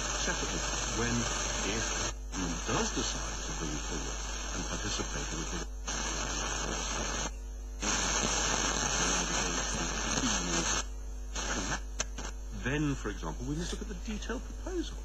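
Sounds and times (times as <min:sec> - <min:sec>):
faint distant radio station audio: 0:00.0 - 0:15.0
radio static hiss: 0:00.0 - 0:15.0
steady mains hum: 0:00.0 - 0:15.0.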